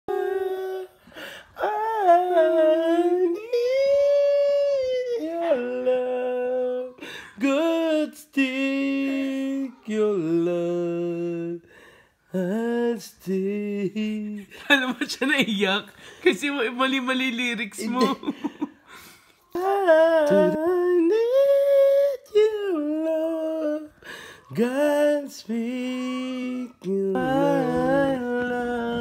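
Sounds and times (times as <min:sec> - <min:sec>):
person humming a slow melody: 0:00.1 - 0:11.6, 0:19.6 - 0:29.0
breaths: 0:01.0 - 0:01.6, 0:07.0 - 0:07.4, 0:11.6 - 0:12.3, 0:15.9 - 0:16.3, 0:18.8 - 0:19.5, 0:23.9 - 0:24.5.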